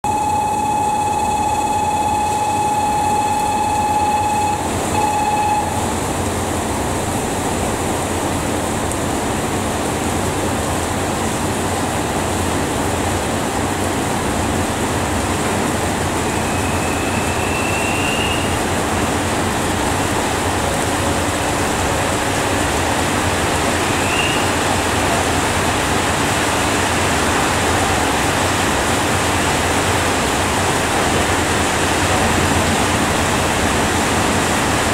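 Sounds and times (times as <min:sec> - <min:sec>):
departure buzzer tone: 0:00.0 - 0:05.9
heavy rain pouring: 0:00.0 - 0:34.9
diesel railcar idling: 0:11.4 - 0:34.9.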